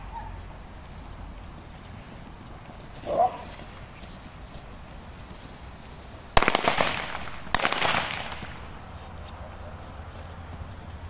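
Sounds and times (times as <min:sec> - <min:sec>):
sharp cracks with brief rattle: 0:06.4 - 0:08.8.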